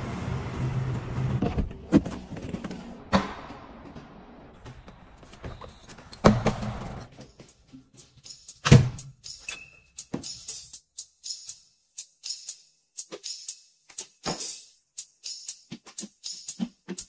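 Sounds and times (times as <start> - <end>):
car engine running: 0.0 - 3.1.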